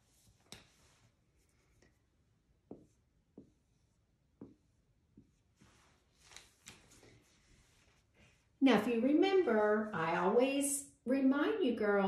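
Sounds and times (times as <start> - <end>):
marker scratching on whiteboard: 0.0 - 5.9
marker tapping on whiteboard: 2.6 - 3.7, 4.3 - 5.4.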